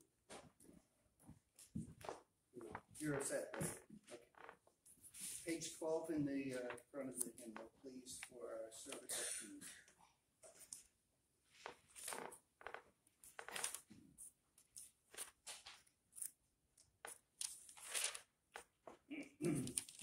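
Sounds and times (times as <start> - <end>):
book pages turning: 11.7 - 12.2, 13.2 - 14.0, 14.6 - 19.0, 19.6 - 20.0.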